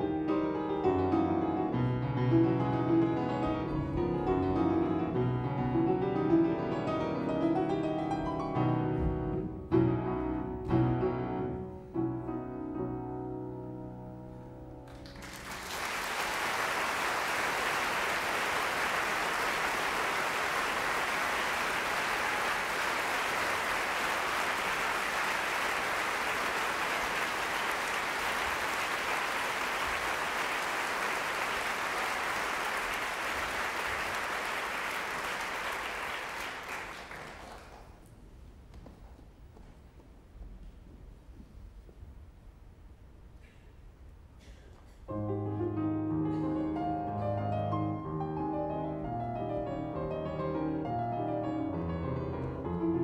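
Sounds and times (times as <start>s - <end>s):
grand piano notes: 0.0s - 15.0s, 45.1s - 53.0s
audience applause: 14.9s - 38.0s.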